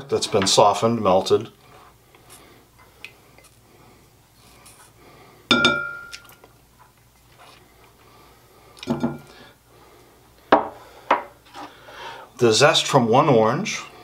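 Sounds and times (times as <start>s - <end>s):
faint handling sounds: 1.4s - 5.0s, 6.1s - 9.0s.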